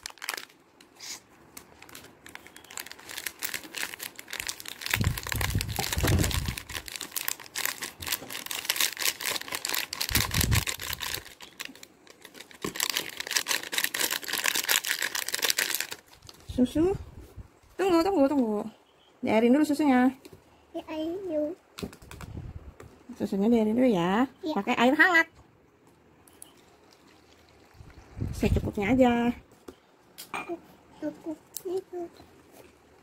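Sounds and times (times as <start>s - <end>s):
foil sachet crinkling: 0.0s - 16.6s.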